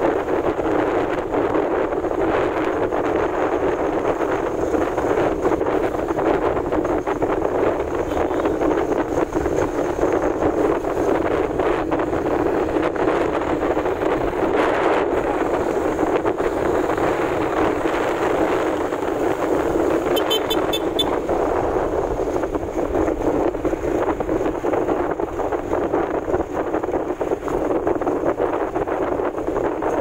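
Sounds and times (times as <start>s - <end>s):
motorcycle engine and road noise: 0.0s - 30.0s
wind on microphone: 0.0s - 30.0s.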